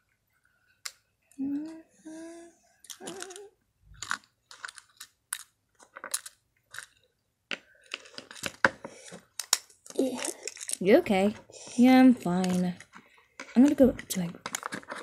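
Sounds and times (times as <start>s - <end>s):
hummed voice sounds: 1.4s - 3.6s
plastic toy figurines clicking: 2.9s - 7.0s.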